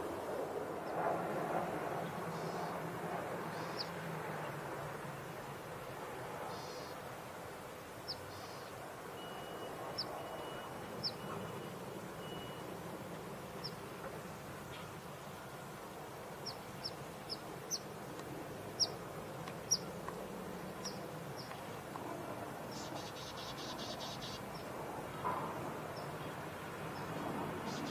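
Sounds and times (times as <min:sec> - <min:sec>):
low background noise: 0:00.0 - 0:27.9
small birds chirping: 0:03.5 - 0:03.9, 0:16.4 - 0:17.9, 0:18.7 - 0:20.2, 0:22.7 - 0:24.8, 0:25.9 - 0:27.9.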